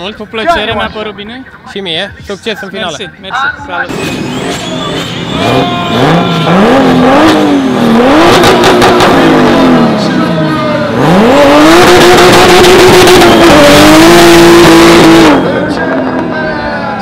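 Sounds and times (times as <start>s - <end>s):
car engine revving hard: 5.2s - 16.2s.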